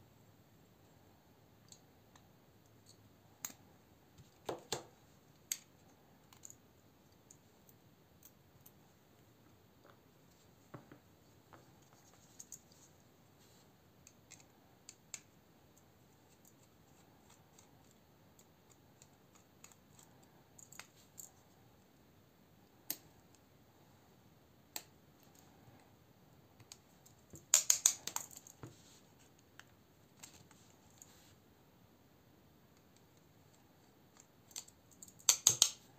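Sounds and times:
clicks and taps of tools: 34.2s - 35.8s.

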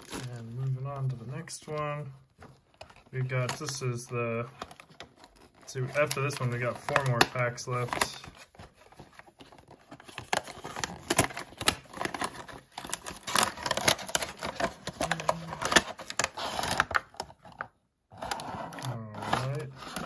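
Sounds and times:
plastic tray crackling: 0.0s - 17.6s
cardboard box being opened: 4.5s - 20.0s.

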